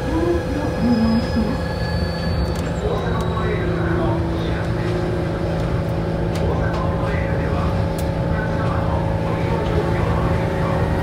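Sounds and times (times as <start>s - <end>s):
train motors humming: 0.0s - 11.0s.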